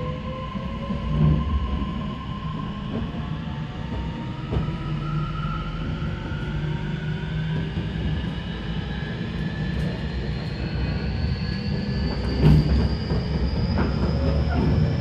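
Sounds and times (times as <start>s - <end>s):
train traction motor whine: 0.0s - 15.0s
train wheels rumbling on rails: 0.0s - 15.0s.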